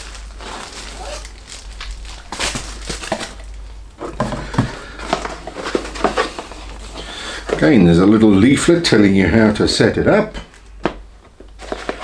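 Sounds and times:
bubble wrap crinkling: 0.0s - 8.6s, 11.4s - 12.0s.

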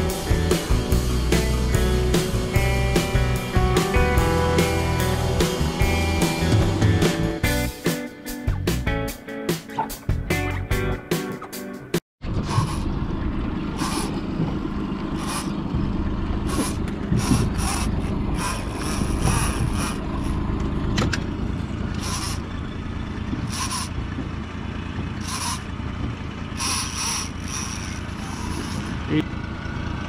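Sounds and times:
steady low rumble: 12.2s - 26.6s
fishing reel winding: 13.8s - 14.1s, 15.2s - 15.5s, 16.5s - 20.4s, 22.0s - 22.4s, 23.5s - 23.9s, 25.2s - 25.6s, 26.6s - 29.0s.

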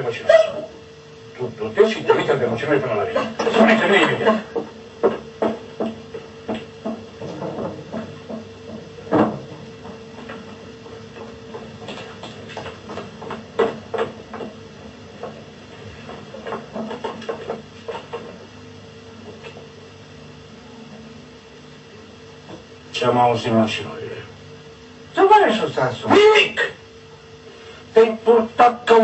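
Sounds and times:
steady hum: 0.0s - 29.0s
knocks and clicks: 3.4s - 18.6s.

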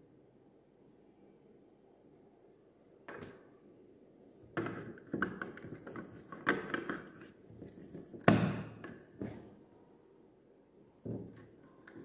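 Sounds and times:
plastic taps and scrapes: 4.6s - 9.6s, 11.0s - 12.0s.

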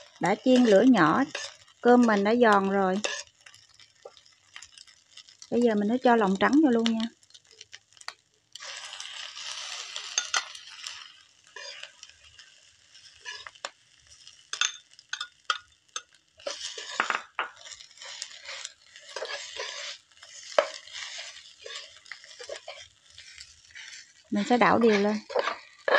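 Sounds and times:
metal spatula scraping pan: 0.0s - 3.5s, 8.6s - 13.6s, 14.3s - 25.9s
food sizzling in frying pan: 0.0s - 25.9s.

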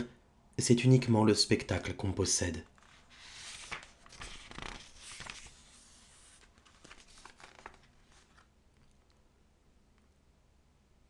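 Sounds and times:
paper rustling: 2.7s - 9.0s.

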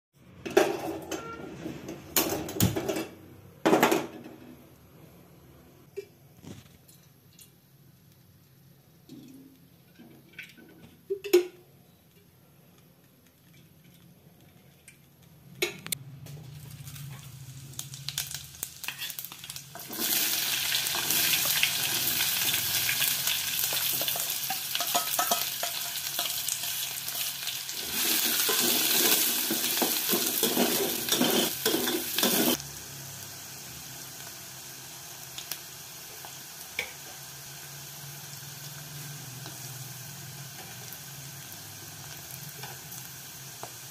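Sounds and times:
onions sizzling in hot oil: 16.4s - 43.9s.

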